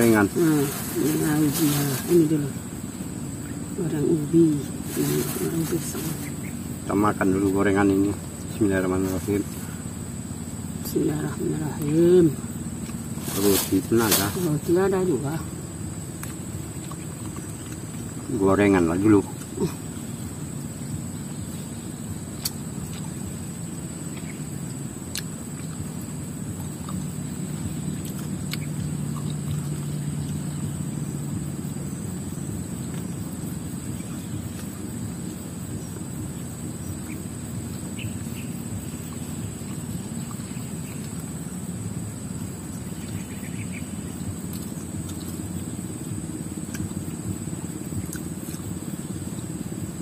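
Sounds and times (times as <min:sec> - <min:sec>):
high insect drone: 0:00.0 - 0:50.0
high-pitched whine: 0:00.0 - 0:50.0
low engine-like hum: 0:00.0 - 0:50.0
low rumble: 0:00.0 - 0:50.0.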